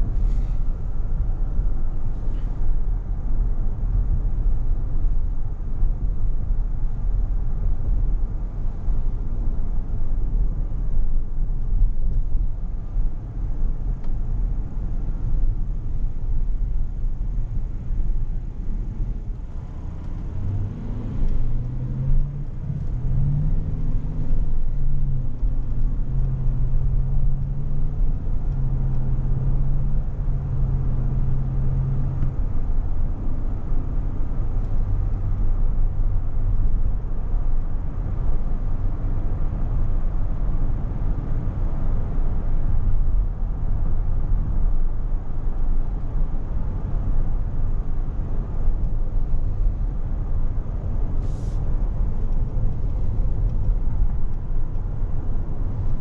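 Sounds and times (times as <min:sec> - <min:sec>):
car road and engine rumble: 0:00.0 - 0:56.0.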